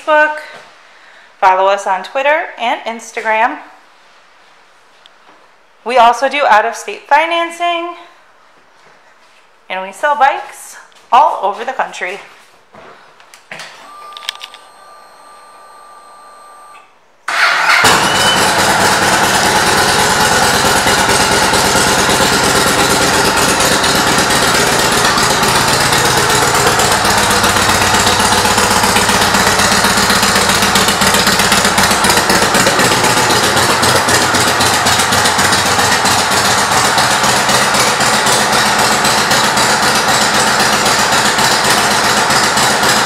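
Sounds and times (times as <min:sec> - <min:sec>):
motorcycle engine starting and idling: 0:17.3 - 0:43.0.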